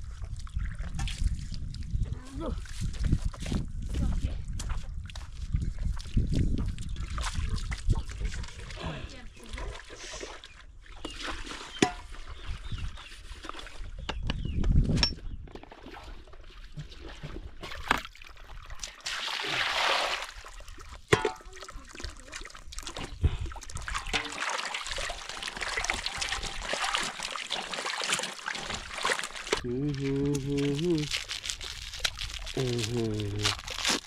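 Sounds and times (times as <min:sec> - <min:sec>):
water splashing and sloshing: 0:00.0 - 0:14.0, 0:15.4 - 0:32.6
metal basin knocks: 0:21.1 - 0:21.4.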